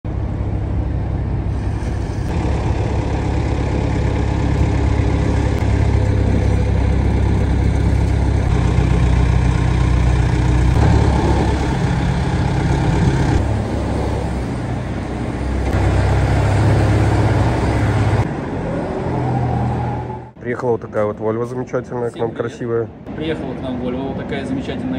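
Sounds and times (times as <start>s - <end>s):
diesel truck engine running: 0.0s - 18.6s.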